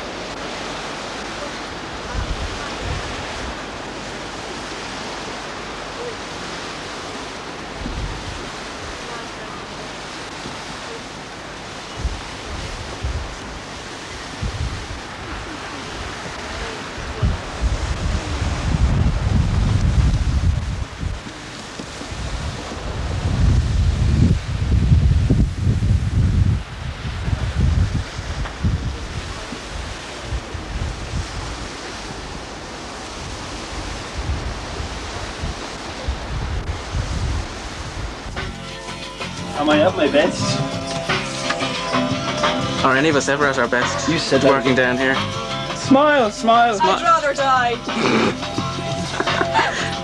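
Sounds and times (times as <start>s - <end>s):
wind buffeting microphone: 0.0s - 38.6s
wind hiss: 0.0s - 50.0s.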